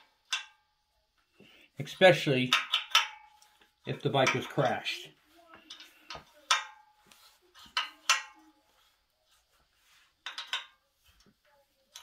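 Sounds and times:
wrench clinking on metal bolts: 0.2 - 0.6, 2.4 - 3.4, 10.2 - 10.8.

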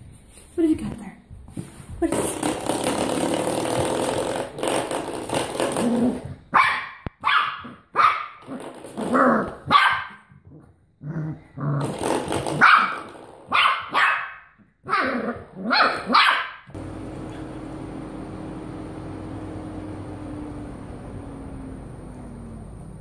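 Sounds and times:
puppy barking in high yaps: 6.5 - 8.4, 9.6 - 10.3, 12.6 - 16.7
puppy growling: 10.5 - 12.1
low hum: 16.8 - 23.0.

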